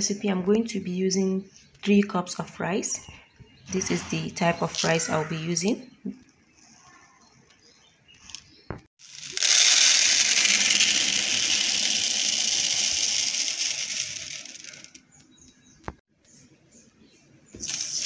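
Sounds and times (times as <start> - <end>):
rice pouring into plastic bowl: 9.0 - 15.0, 17.6 - 18.0.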